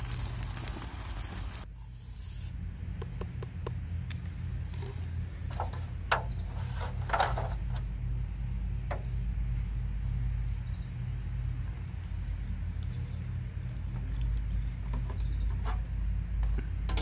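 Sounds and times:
low rumble: 0:07.4 - 0:17.0.

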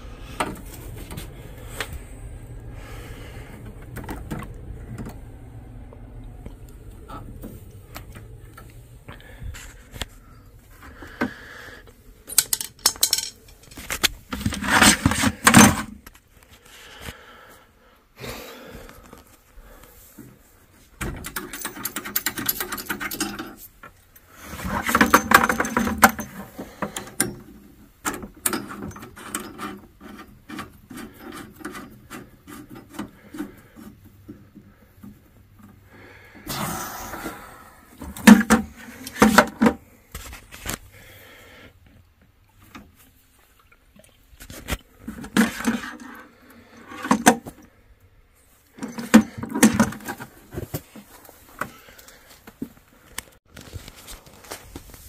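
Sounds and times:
tools scraping and clicking: 0:12.2 - 0:16.2, 0:21.0 - 0:34.4, 0:44.4 - 0:47.7.

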